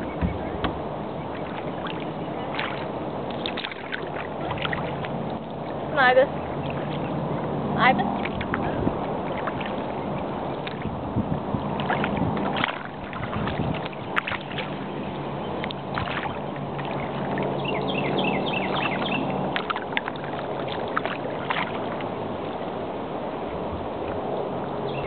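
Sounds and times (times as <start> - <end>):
birds chirping: 0.0 - 10.7, 13.8 - 19.6, 24.8 - 25.0
boat motor humming: 0.0 - 25.0.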